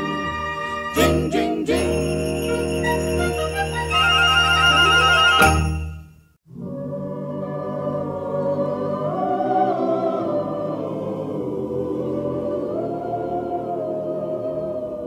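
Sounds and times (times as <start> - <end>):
choir holding sustained chords: 0.0 - 3.5, 6.5 - 15.0.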